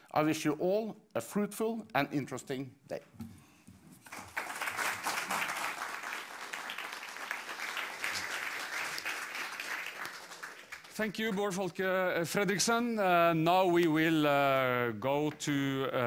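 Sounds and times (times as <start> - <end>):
audience applauding: 4.0 - 11.7.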